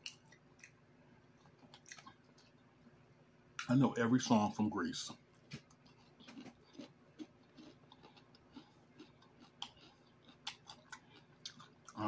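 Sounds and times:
person chewing food: 0.0 - 2.9, 5.4 - 12.0.

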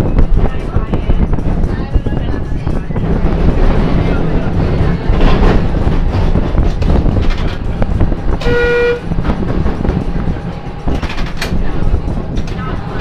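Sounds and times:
rail vehicle rumbling: 0.0 - 13.0
short horn toot: 8.4 - 9.0.

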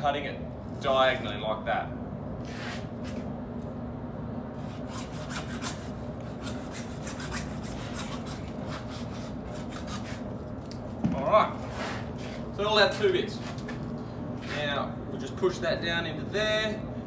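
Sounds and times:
hacksaw cutting plastic: 4.7 - 10.2.

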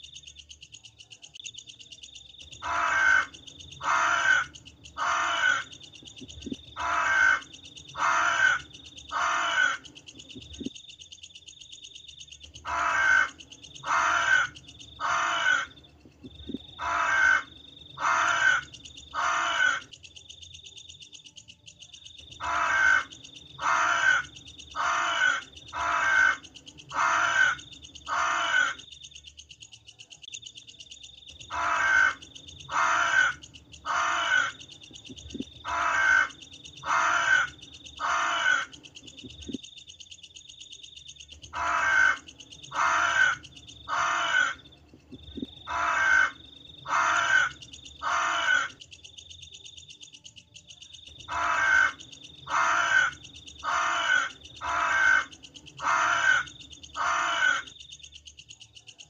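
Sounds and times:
crows cawing: 2.5 - 5.8, 6.4 - 10.0, 12.6 - 15.8, 16.7 - 19.9, 22.4 - 28.9, 31.5 - 34.6, 35.3 - 38.8, 41.5 - 44.7, 45.6 - 48.8, 51.2 - 57.8.

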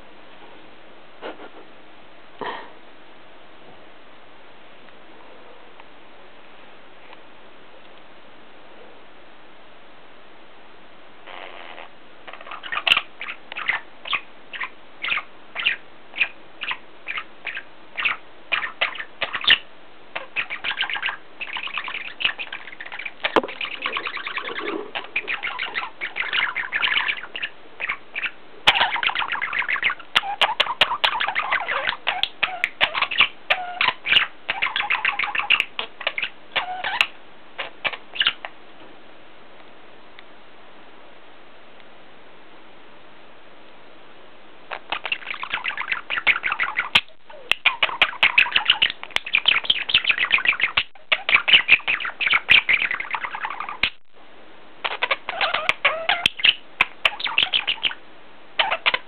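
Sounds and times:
budgerigars chattering and chirping: 12.3 - 38.5, 44.7 - 54.0, 54.8 - 58.0, 58.6 - 59.0.

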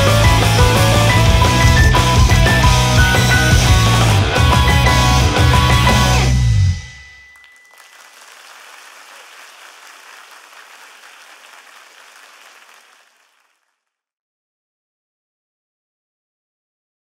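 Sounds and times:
ringing music note: 6.8 - 8.1
audience applauding: 7.4 - 13.7.

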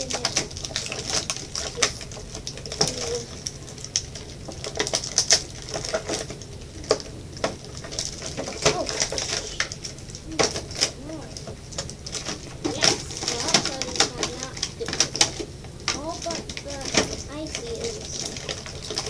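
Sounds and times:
plastic packaging crinkling: 0.0 - 19.0.

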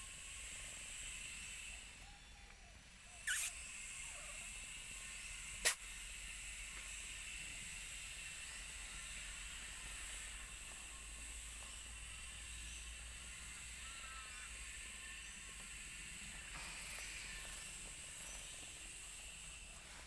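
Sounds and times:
faint hiss: 0.0 - 20.0
sharp click: 5.6 - 5.8.

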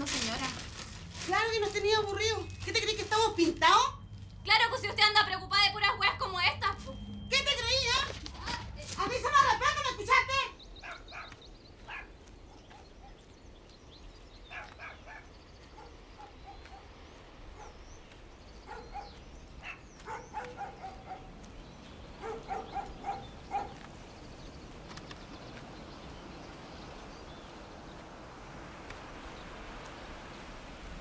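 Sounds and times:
faint bird chirps: 9.4 - 28.0
dog barking: 10.8 - 13.3, 14.5 - 17.9, 18.6 - 21.4, 22.2 - 23.9.

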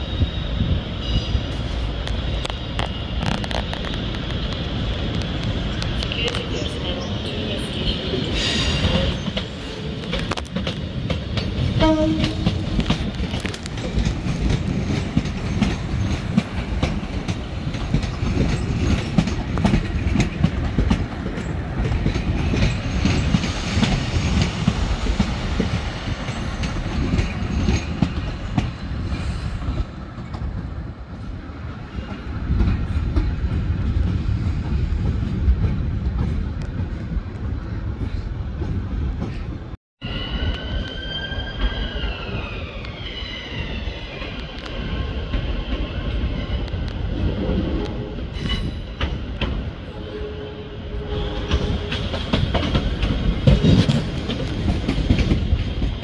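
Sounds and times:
diesel train rumble: 0.0 - 39.8.

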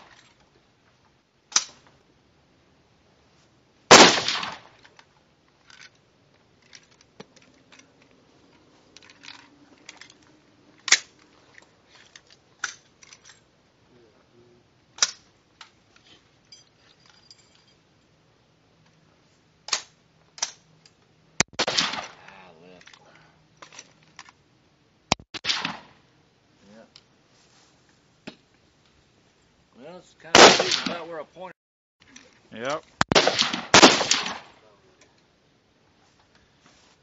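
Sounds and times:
metallic clicks of rifle handling: 1.5 - 1.9, 4.3 - 13.5, 15.0 - 15.8, 19.7 - 21.1, 22.8 - 24.4
rifle shot ringing: 3.9 - 4.7, 21.6 - 22.2, 25.4 - 25.9, 30.4 - 31.2, 33.1 - 34.6.

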